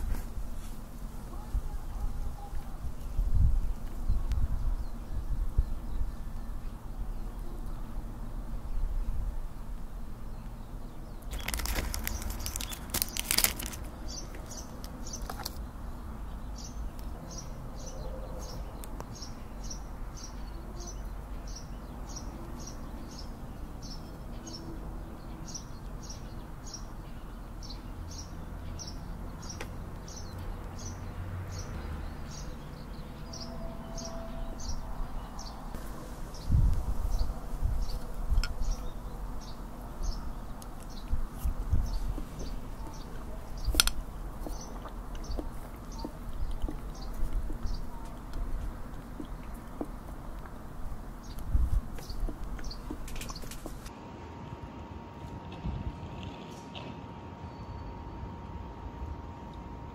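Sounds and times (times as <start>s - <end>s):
outdoor background noise: 0.0s - 59.9s
plastic wrapping crinkling: 11.3s - 15.6s.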